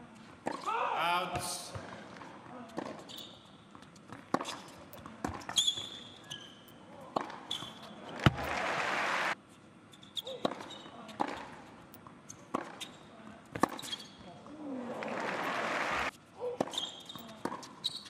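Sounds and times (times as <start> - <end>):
tennis ball bouncing: 1.8 - 3.1, 3.7 - 5.9, 7.1 - 8.6
shoes squeaking on court: 1.8 - 8.6, 9.8 - 14.4, 15.4 - 18.0
crowd applause: 8.2 - 9.4, 14.9 - 16.1.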